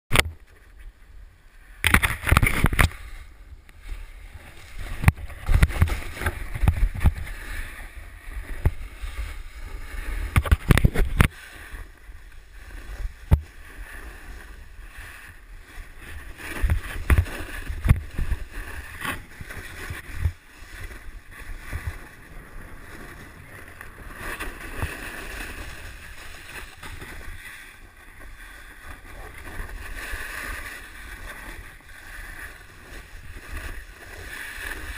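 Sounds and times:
snowboard scraping over snow: 1.5s - 34.9s
wind buffeting microphone: 1.8s - 27.5s.

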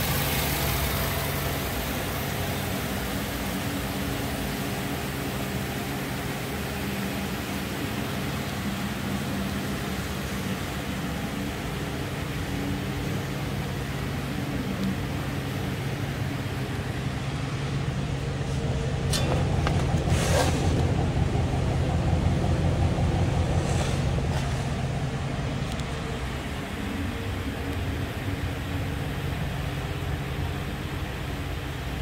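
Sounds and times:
truck engine idling: 0.0s - 32.0s
brief rushing sounds: 18.4s - 21.6s.

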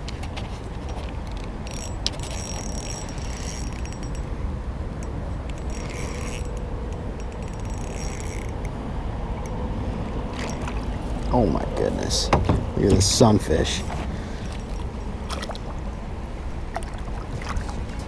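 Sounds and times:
fishing reel gears whirring: 1.2s - 11.2s.

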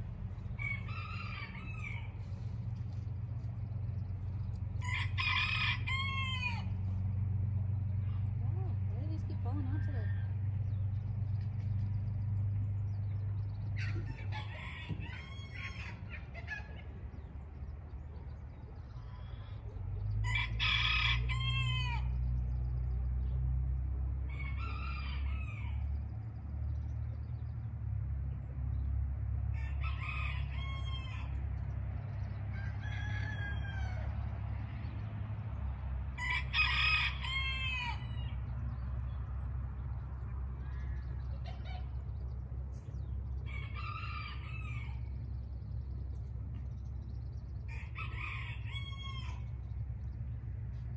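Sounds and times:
steady low hum: 0.0s - 37.3s, 37.9s - 50.9s
rooster crowing: 0.5s - 2.4s, 4.8s - 6.8s, 13.8s - 16.6s, 20.2s - 22.2s, 24.2s - 26.0s, 29.5s - 31.4s, 32.5s - 34.5s, 36.1s - 38.4s, 43.4s - 45.3s, 47.6s - 49.7s.

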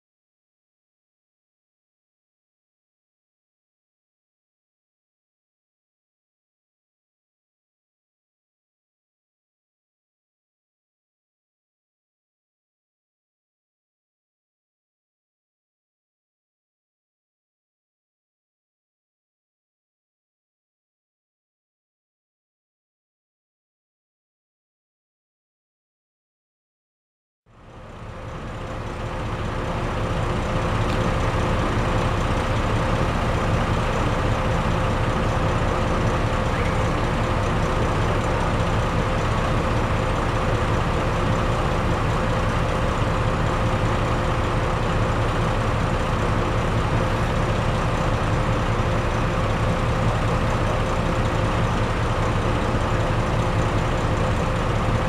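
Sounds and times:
diesel locomotive engine rumble: 27.5s - 55.0s.

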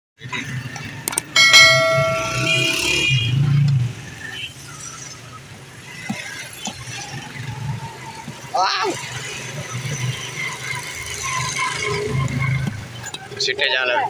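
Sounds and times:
ringing bell chime: 1.4s - 3.0s.

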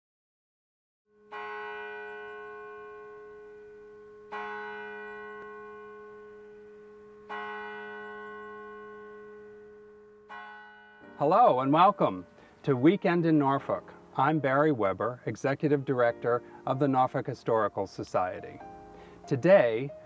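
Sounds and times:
church bell tolling: 1.2s - 14.0s.

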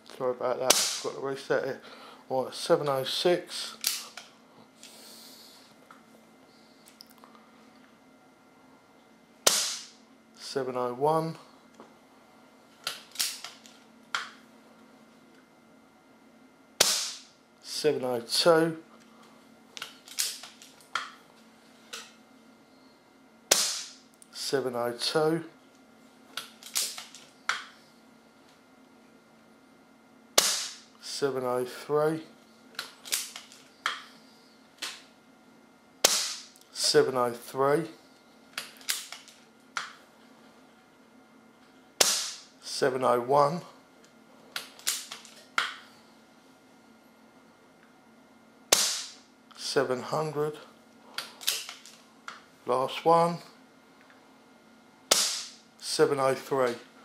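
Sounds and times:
air rifle shot: 0.7s - 1.1s, 9.5s - 10.0s, 16.8s - 17.3s, 23.5s - 24.0s, 30.4s - 30.9s, 36.0s - 36.5s, 42.0s - 42.5s, 48.7s - 49.2s, 55.1s - 55.6s
air rifle clicks: 26.4s - 27.7s.

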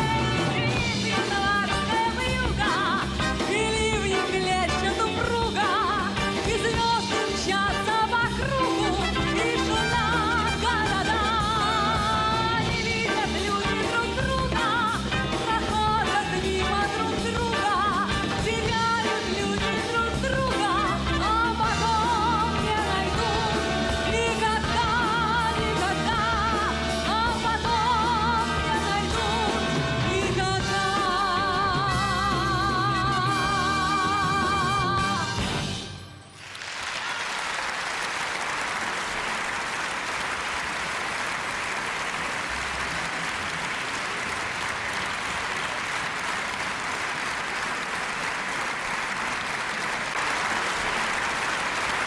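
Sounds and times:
woman singing wordless vibrato: 0.0s - 35.5s
orchestra playing: 0.0s - 36.7s
trumpets and trombones: 6.1s - 12.5s.

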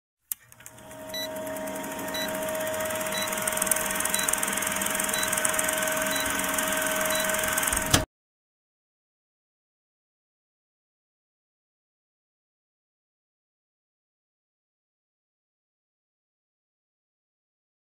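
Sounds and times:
film projector whirring: 0.3s - 8.1s
short high beeps: 1.1s - 1.3s, 3.1s - 3.4s, 5.1s - 7.6s.

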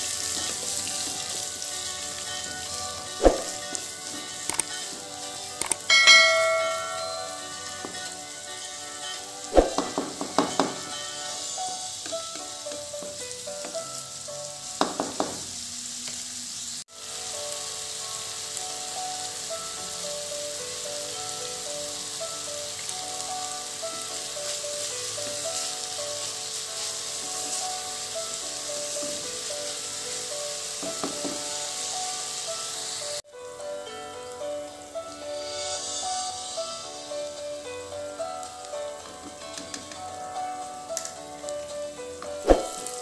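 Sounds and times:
soft plucked background music: 0.0s - 14.8s, 17.2s - 43.0s
onions sizzling in hot oil: 0.0s - 43.0s
wooden spatula knocking on pan: 9.6s - 10.9s, 14.8s - 15.5s, 30.8s - 31.5s.

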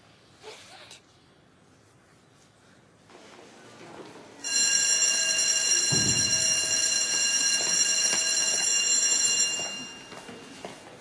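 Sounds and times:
electric school bell ringing: 4.4s - 10.6s.

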